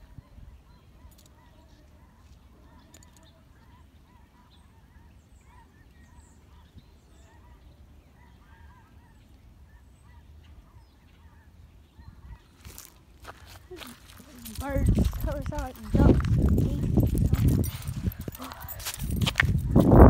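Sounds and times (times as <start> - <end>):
faint waterfowl calls: 1.0 - 14.5.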